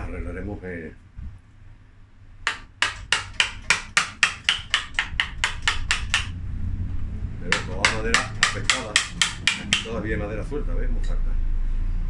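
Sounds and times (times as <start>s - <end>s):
hammer striking carving tool: 2.4s - 6.4s, 7.4s - 10.0s.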